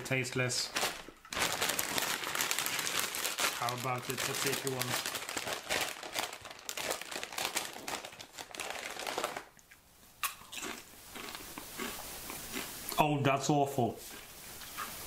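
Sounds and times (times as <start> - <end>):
plastic bag crinkling: 0.3 - 9.6
crunchy chewing: 9.6 - 13.0, 14.0 - 15.0.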